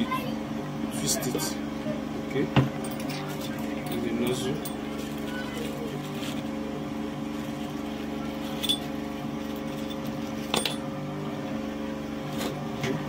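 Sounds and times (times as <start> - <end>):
steady low hum: 0.0 - 13.0
plastic bag crinkling: 4.8 - 6.6, 7.3 - 8.7.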